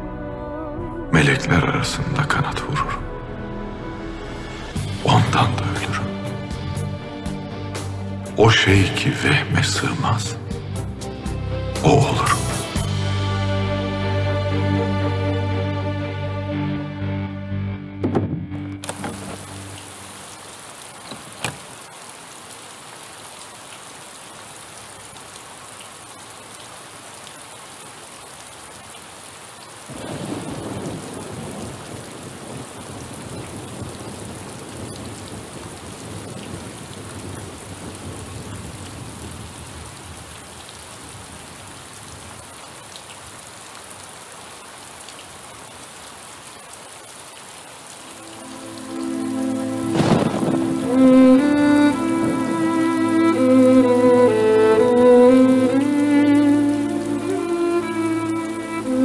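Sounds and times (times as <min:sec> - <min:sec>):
steady rain falling: 0:01.1 - 0:03.1, 0:04.6 - 0:16.3, 0:18.4 - 0:59.0
low rumble of thunder: 0:29.9 - 0:40.3, 0:50.0 - 0:50.8.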